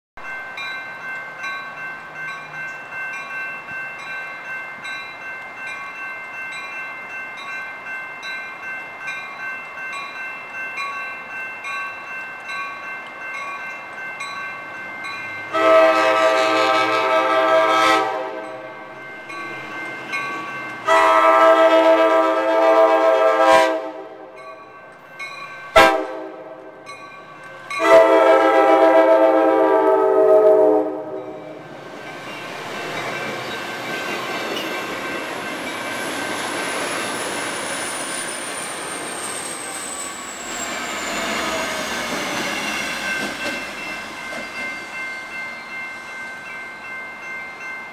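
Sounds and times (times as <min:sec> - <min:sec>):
high train whine: 0:00.2 - 0:47.9
train rumbling past: 0:00.2 - 0:47.9
train air horn: 0:15.5 - 0:18.6, 0:20.9 - 0:24.4, 0:25.8 - 0:26.7, 0:27.8 - 0:31.2.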